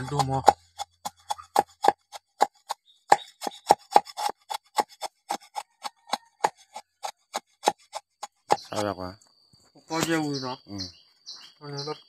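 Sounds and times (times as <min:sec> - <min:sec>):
knife chopping on wooden board: 0:00.0 - 0:08.8.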